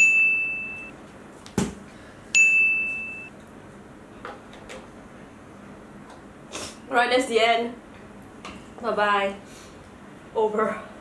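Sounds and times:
bell-like ding: 0.0 - 0.9, 2.4 - 3.3.

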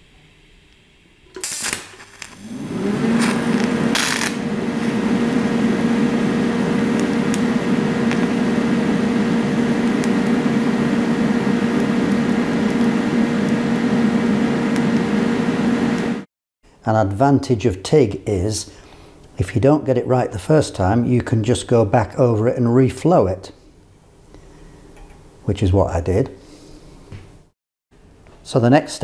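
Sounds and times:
welding arc crackle: 1.3 - 16.2
welding arc hum: 1.3 - 16.3.

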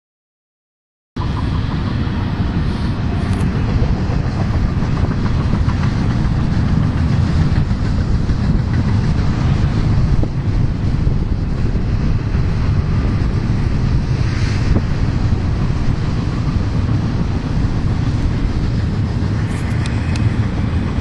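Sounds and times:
diesel locomotives hauling freight train: 1.2 - 21.0
low train rumble: 1.2 - 21.0.

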